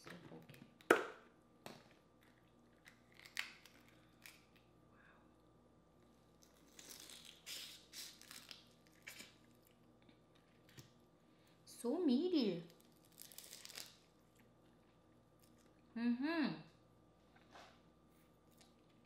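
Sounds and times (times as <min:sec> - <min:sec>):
crawfish shells cracking: 0:02.2 - 0:04.7, 0:12.7 - 0:14.2.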